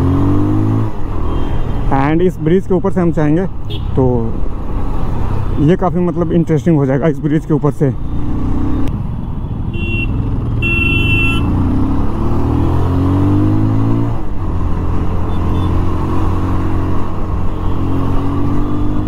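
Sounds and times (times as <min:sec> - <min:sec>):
motorcycle engine accelerating: 0:08.1 - 0:09.1, 0:10.1 - 0:19.0
vehicle horn: 0:09.7 - 0:11.6.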